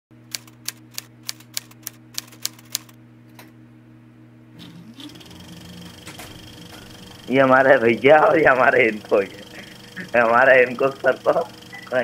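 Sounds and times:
low hum: 3.2 - 12.0.

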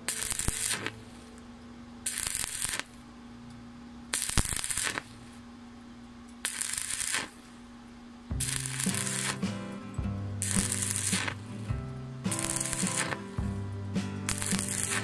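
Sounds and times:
welding arc crackling: 0.0 - 1.4, 2.0 - 3.1, 4.1 - 5.4, 6.3 - 7.6, 8.3 - 15.0
low hum: 0.0 - 15.0.

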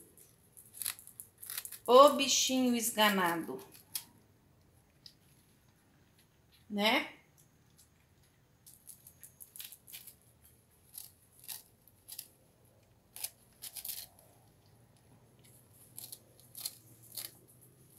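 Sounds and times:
dog crunching hard bread: 0.2 - 1.9, 8.7 - 14.5, 15.4 - 17.9.

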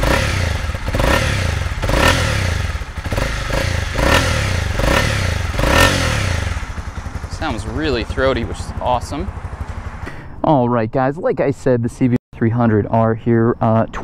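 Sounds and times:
motorcycle engine revving: 0.0 - 10.2.

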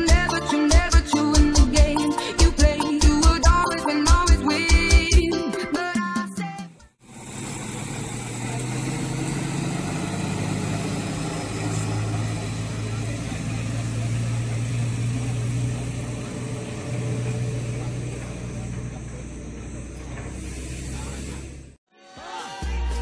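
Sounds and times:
music: 0.0 - 7.0, 21.9 - 23.0
truck engine idling: 7.0 - 21.8.

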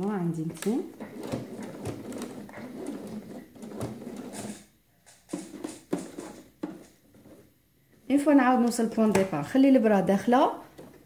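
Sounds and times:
fabric rustling: 0.7 - 7.6.

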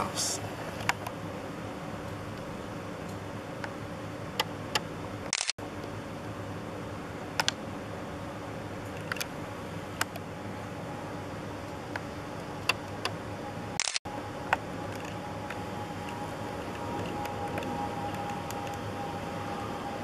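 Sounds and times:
low background hum: 0.0 - 20.0.

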